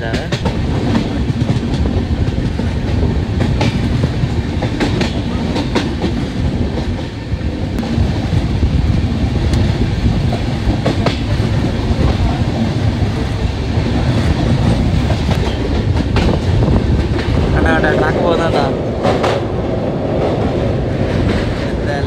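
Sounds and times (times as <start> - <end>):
train wheels rumbling on rails: 0.0 - 22.0.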